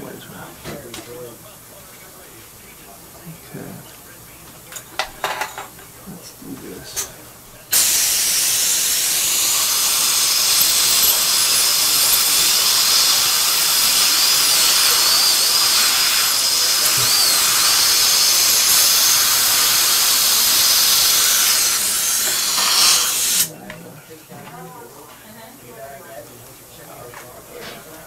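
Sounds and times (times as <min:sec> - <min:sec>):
dental drill whining: 0:07.7 - 0:23.5.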